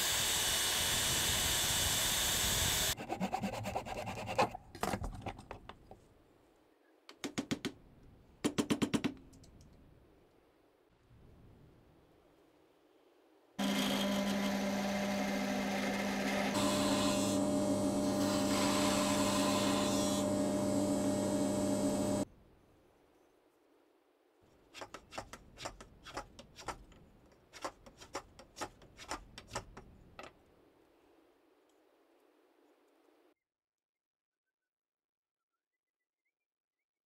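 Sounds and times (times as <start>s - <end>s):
power tool motor running: 0.0s - 3.0s, 13.6s - 22.2s
hand plane shaving wood: 13.6s - 22.2s.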